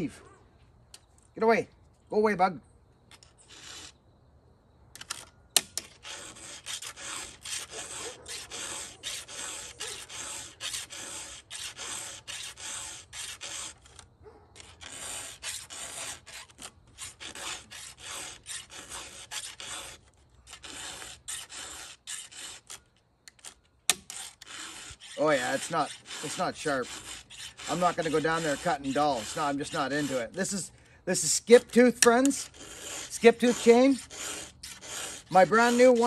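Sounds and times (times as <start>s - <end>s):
hand file rasping on chain: 3.1s - 4.0s, 5.0s - 36.0s.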